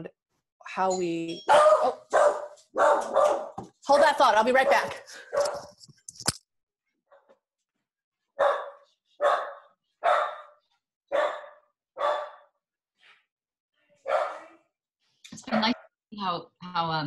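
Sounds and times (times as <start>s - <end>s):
dog barking: 1.5s - 3.6s, 4.6s - 5.7s, 8.4s - 12.6s, 14.0s - 14.7s.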